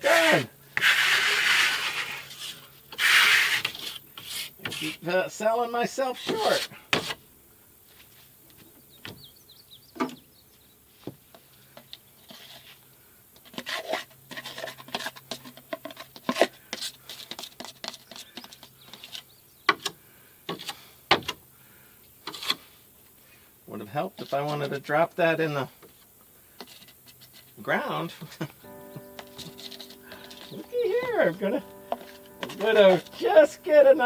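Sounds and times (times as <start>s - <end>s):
faint bird chirps: 8.8s - 10.9s
rustling: 25.7s - 34.0s.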